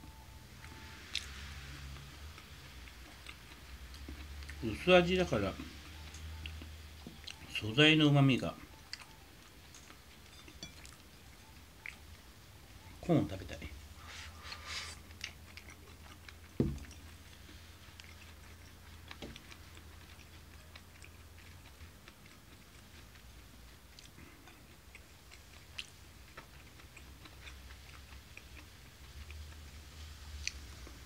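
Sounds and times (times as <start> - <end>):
person chewing food: 0.1 - 4.9, 5.5 - 7.6, 8.6 - 13.0, 13.8 - 31.0
thump: 16.6 - 16.9.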